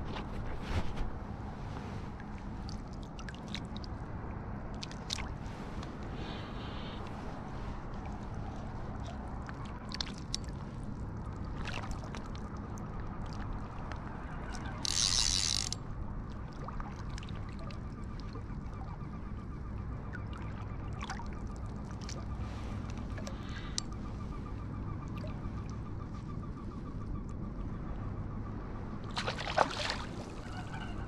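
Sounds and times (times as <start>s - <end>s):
small clicks: 14.8s - 15.8s
fish splashing: 29.2s - 30.4s.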